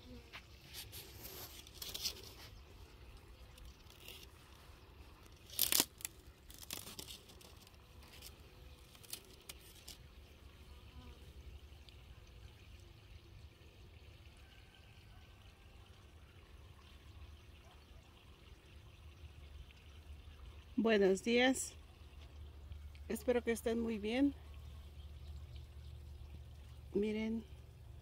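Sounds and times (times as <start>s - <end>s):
dry leaves rustling and crackling: 0.7s - 2.6s, 3.7s - 10.0s.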